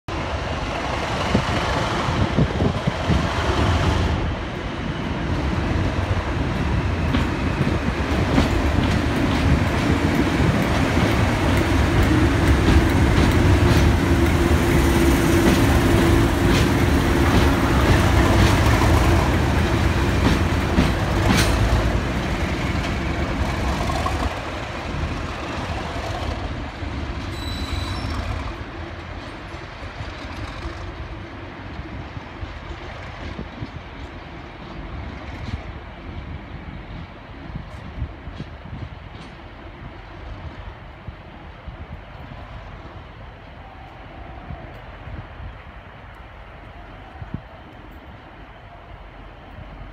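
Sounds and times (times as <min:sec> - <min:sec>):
diesel locomotives droning: 0:00.1 - 0:49.9
train wheel clicks: 0:06.1 - 0:25.3.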